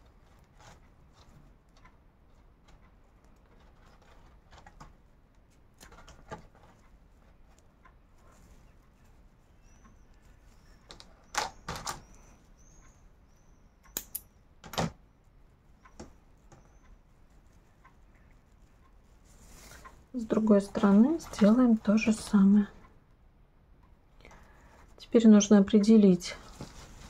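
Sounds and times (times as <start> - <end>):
paper yarn crackling and rustling: 0.0 - 11.2, 16.4 - 22.5, 26.2 - 27.0
sharp clicks: 13.9 - 15.0.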